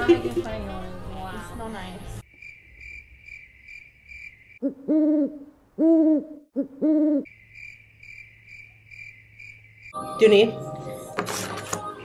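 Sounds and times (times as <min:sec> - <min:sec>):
crickets chirping: 0:02.2 - 0:05.3, 0:06.6 - 0:10.0
owl hooting: 0:04.6 - 0:07.4.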